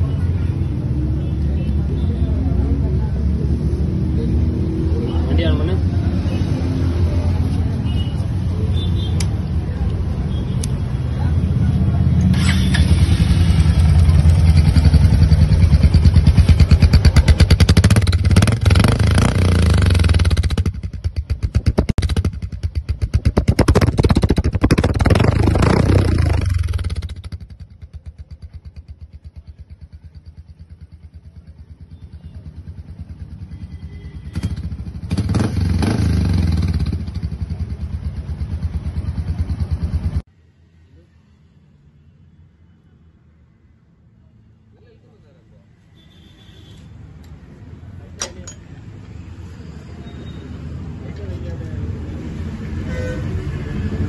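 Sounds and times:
motorcycle engine revving and idling: 11.1 - 40.3.

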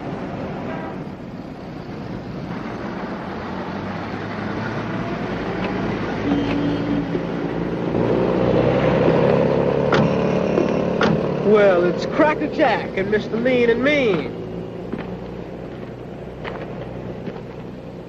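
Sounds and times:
road noise: 0.0 - 18.0
car engine running: 5.6 - 18.0.

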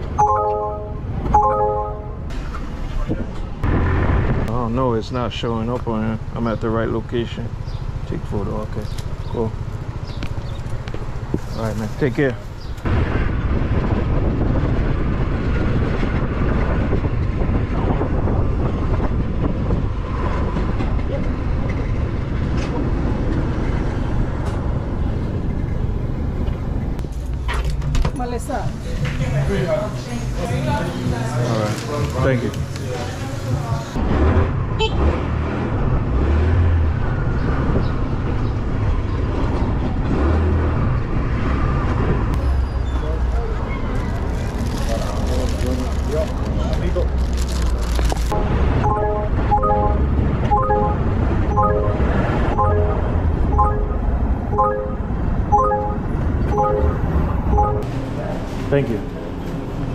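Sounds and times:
road noise: 0.0 - 59.9
wind on microphone: 12.9 - 25.9.

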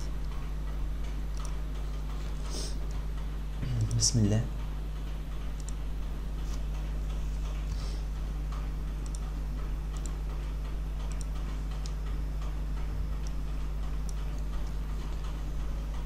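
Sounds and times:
steady low hum: 0.0 - 16.0
computer mouse clicks: 1.3 - 2.1, 5.4 - 5.8, 8.5 - 10.2, 11.0 - 12.2, 12.8 - 15.4.

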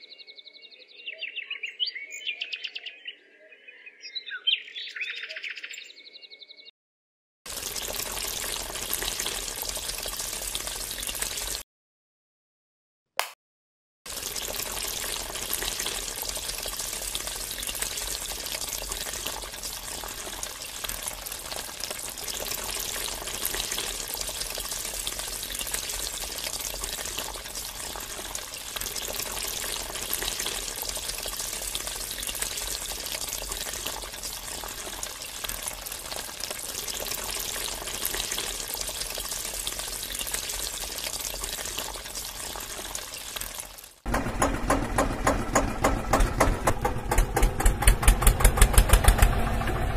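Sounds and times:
water splashing on ground: 7.5 - 11.6, 14.1 - 44.2
water spraying from hose nozzle: 7.5 - 11.6, 14.1 - 45.0.

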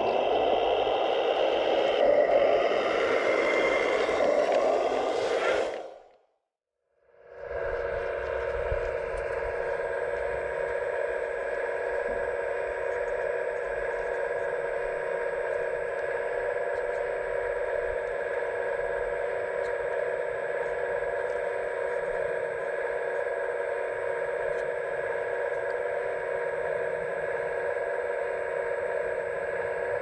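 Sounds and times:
hydraulic pump whining: 0.0 - 6.1.

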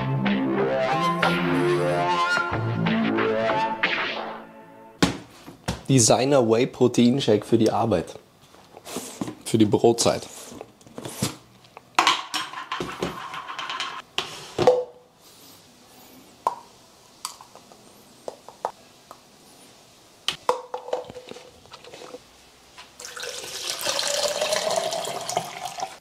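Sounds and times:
water pouring into plastic bottle: 23.0 - 26.0.

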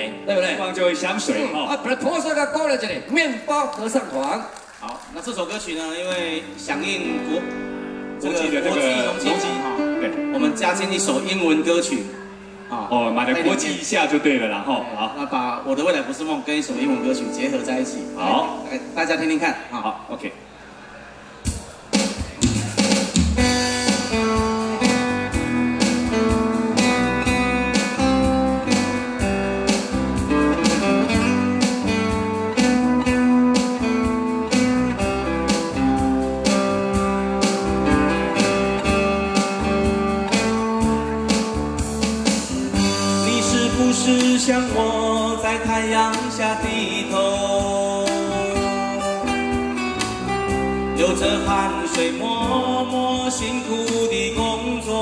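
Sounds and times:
electric guitars: 4.5 - 13.6, 21.4 - 55.0
steady drum beat: 21.4 - 47.9.

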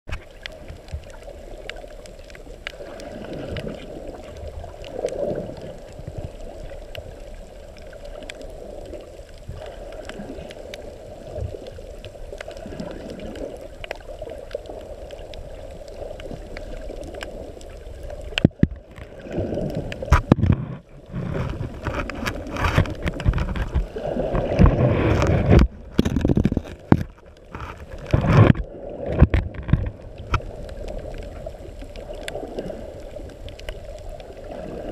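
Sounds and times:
muffled underwater rumble: 0.1 - 34.9.

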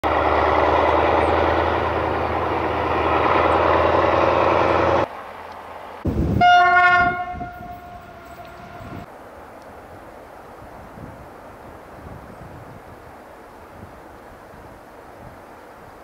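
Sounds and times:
locomotive engine running loudly: 0.0 - 6.4
locomotive horn blast: 6.1 - 9.1.

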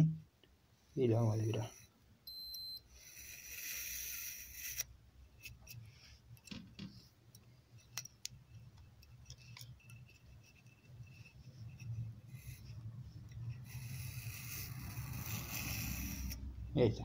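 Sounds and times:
lace scraping through blade tool: 3.1 - 6.2, 7.8 - 16.5.

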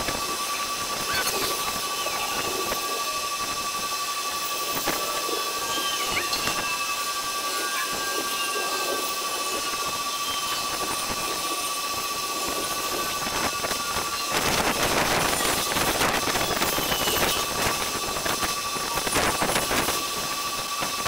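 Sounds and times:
sped-up rushing hiss: 0.0 - 21.0
thin whistle-like tone: 0.4 - 15.6, 16.3 - 17.9.

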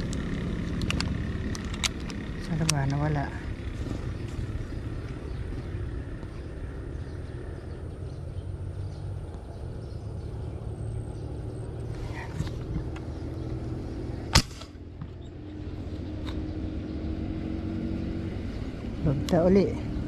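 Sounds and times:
steady low rumble: 0.0 - 17.2
airgun shot: 14.3 - 14.8.

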